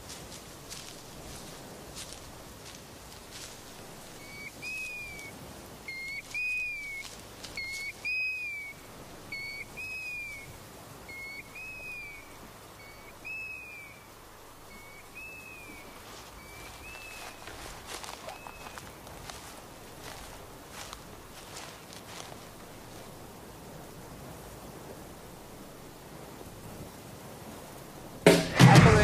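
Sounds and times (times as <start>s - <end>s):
bird whistled call: 4.2s - 19.0s.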